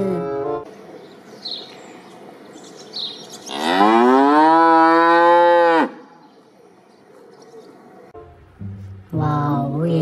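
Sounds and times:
cow mooing: 3.5 - 6.0.

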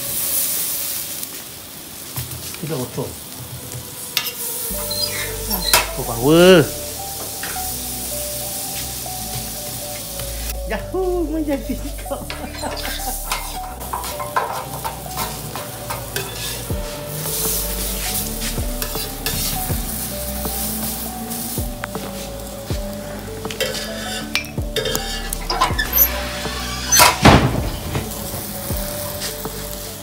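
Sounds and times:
flatbreads sizzling in oil: 0.0 - 30.0
background music: 1.9 - 30.0
metal door squeak: 4.2 - 6.1, 12.3 - 16.6, 25.0 - 29.2
metal spatula scraping plate: 12.3 - 16.7, 23.6 - 27.2.

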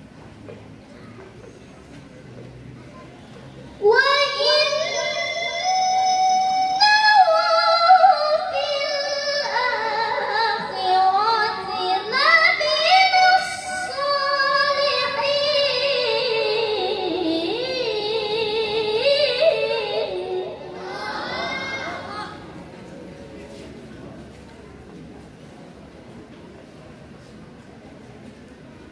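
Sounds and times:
girl chanting into microphone: 3.8 - 22.4.

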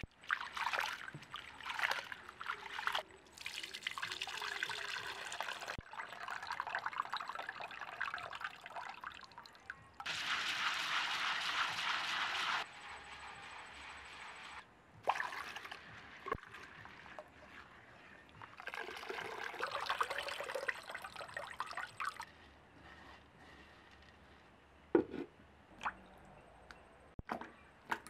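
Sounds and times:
coconut milk splashing and trickling: 0.0 - 12.6, 15.0 - 22.3.

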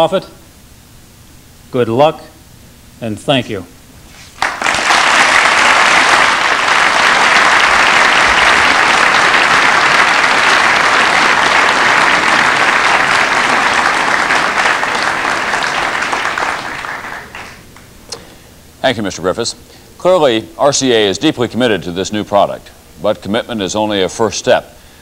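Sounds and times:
audience applauding: 4.4 - 17.8.

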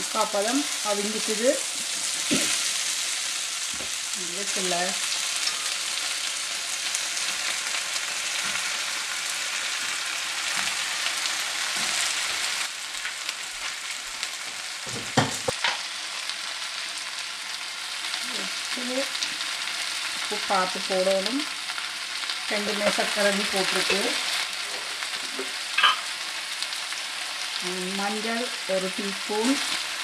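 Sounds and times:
vegetables sizzling in oil: 0.0 - 30.0
sharp knocks on wok: 14.9 - 15.8.

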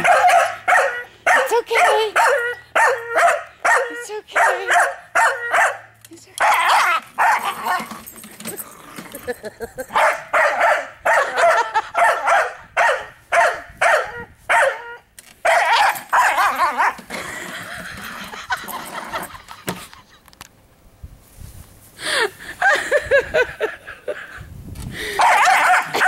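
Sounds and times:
dog barking: 0.0 - 7.8, 9.9 - 17.0, 25.2 - 26.0.

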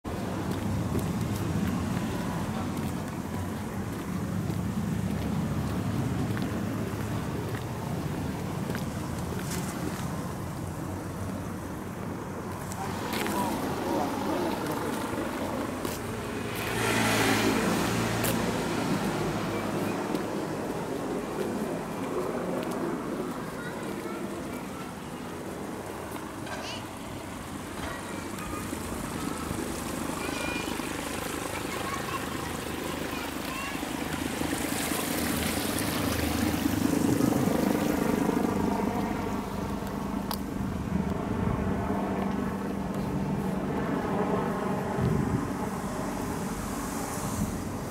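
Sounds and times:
engine running steadily: 0.1 - 47.9
car driving past: 12.8 - 20.6.

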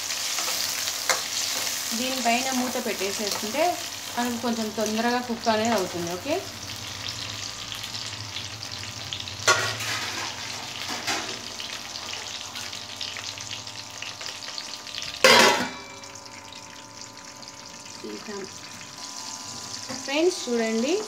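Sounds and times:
tomatoes sizzling in hot oil: 0.0 - 21.0
steel lid clanging on pan: 15.2 - 16.0.

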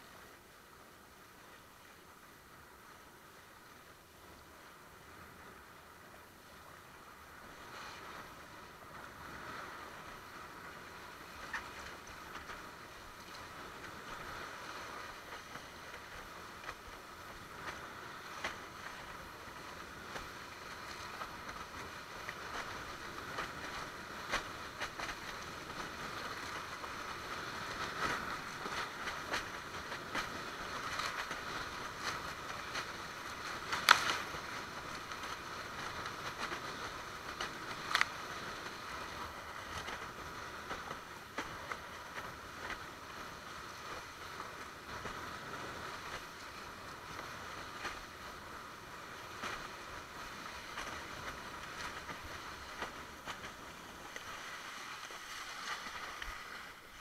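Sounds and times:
water rushing along board: 0.0 - 57.0
water slapping against board: 27.8 - 42.8, 50.4 - 57.0.

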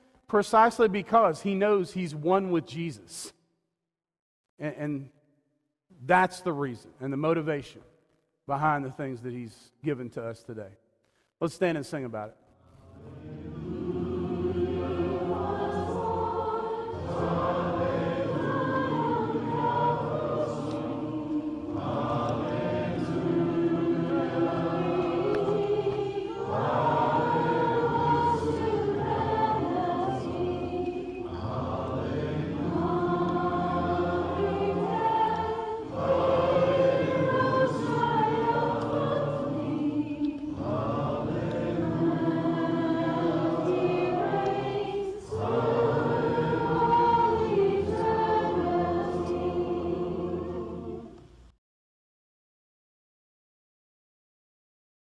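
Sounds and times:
congregation singing a hymn: 12.8 - 51.3.

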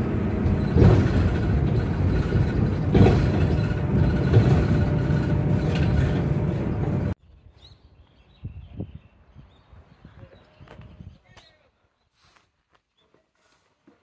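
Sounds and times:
bus bumps: 0.0 - 7.2
bus engine and road rumble: 0.0 - 7.2.

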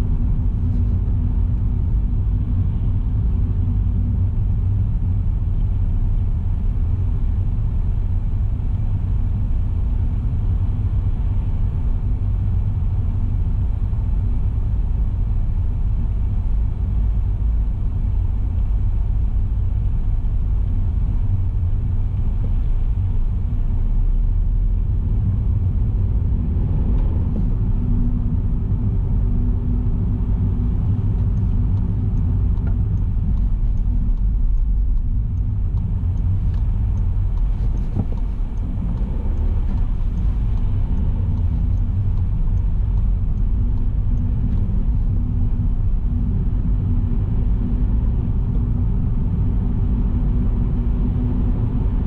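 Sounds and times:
car road and engine rumble: 0.0 - 52.0.

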